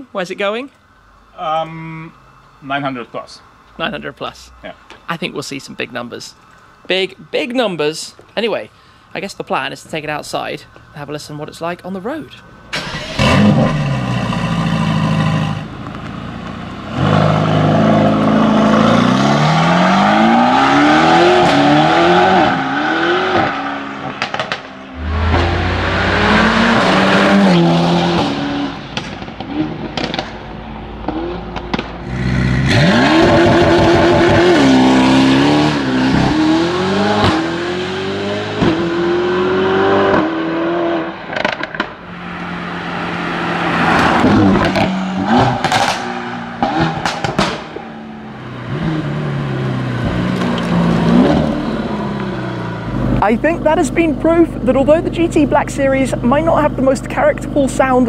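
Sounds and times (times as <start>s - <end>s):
car engine accelerating hard: 12.7s - 58.0s
exhaust cracks and pops: 23.4s - 25.4s, 28.9s - 34.4s, 41.3s - 42.0s, 43.9s - 47.8s, 50.0s - 51.6s.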